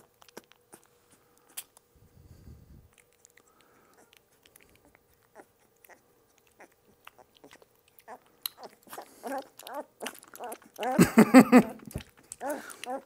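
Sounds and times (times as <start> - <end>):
puppy smacking and licking: 0.0 - 1.9, 2.9 - 11.0, 11.6 - 13.0
puppy whimpering and squealing: 4.8 - 11.0, 12.3 - 13.0.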